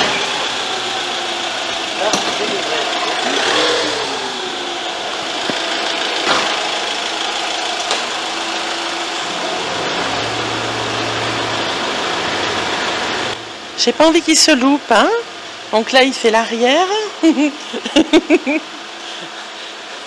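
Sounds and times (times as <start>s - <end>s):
motorhome engine idling: 0.0s - 20.0s.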